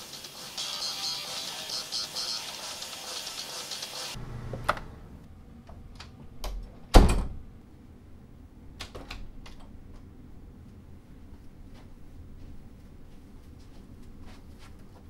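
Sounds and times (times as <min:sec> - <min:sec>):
music: 0:00.0 - 0:04.2
heavy door thud: 0:06.9 - 0:07.4.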